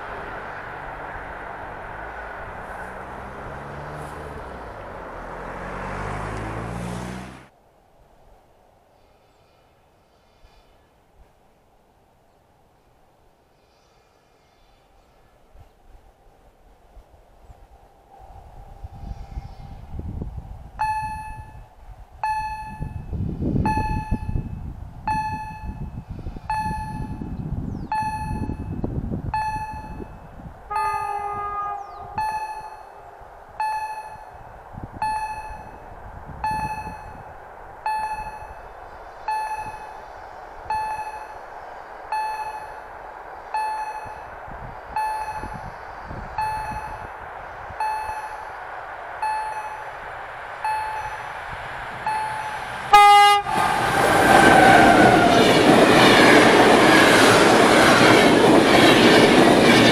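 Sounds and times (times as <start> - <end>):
passenger train rumbling past: 0.0 - 7.6, 14.3 - 59.9
train horn blast: 9.0 - 10.8, 13.6 - 15.3, 30.7 - 33.2, 52.4 - 55.6.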